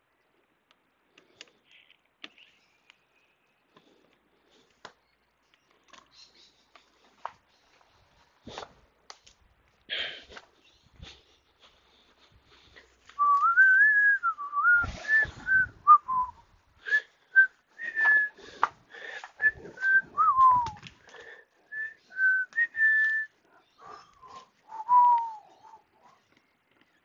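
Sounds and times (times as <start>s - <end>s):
person whistling a tune: 13.2s - 18.4s, 19.4s - 20.8s, 21.8s - 23.3s, 24.2s - 25.5s.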